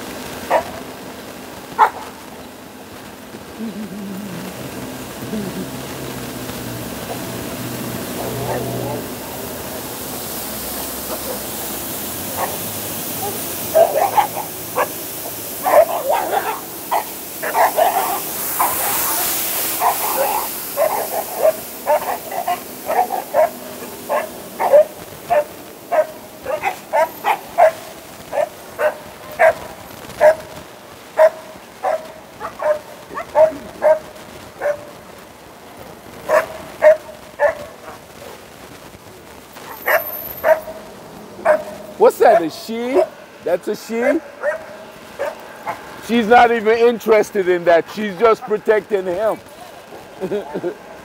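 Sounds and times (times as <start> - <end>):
street sweeper hiss: 0.0 - 51.0
dog barking: 0.4 - 0.8, 1.8 - 2.2, 8.2 - 9.1, 11.0 - 11.5, 12.3 - 12.6, 13.2 - 15.0, 15.6 - 30.5, 31.2 - 35.0, 36.3 - 38.4, 39.6 - 40.8, 41.4 - 43.2, 44.2 - 45.9.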